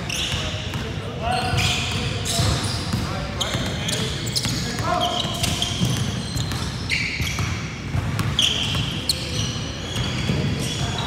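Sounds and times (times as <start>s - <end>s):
sneakers squeaking: 0.0s - 11.0s
basketball bouncing: 5.3s - 8.8s.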